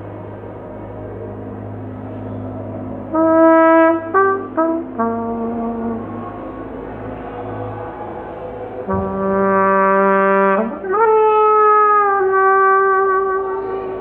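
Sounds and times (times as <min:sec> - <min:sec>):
solo trumpet playing: 0:03.1 - 0:06.5, 0:08.9 - 0:14.0.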